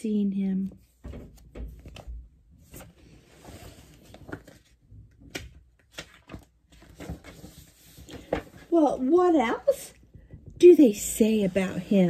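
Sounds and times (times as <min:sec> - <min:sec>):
paper rustling: 0:01.1 - 0:09.1.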